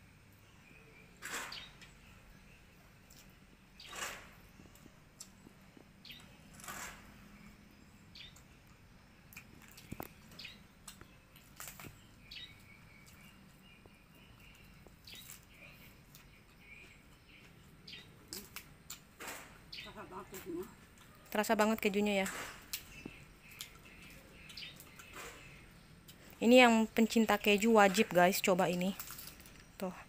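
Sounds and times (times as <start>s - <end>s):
crunching while chewing: 8.2s - 13.6s, 14.4s - 19.6s, 22.4s - 26.3s.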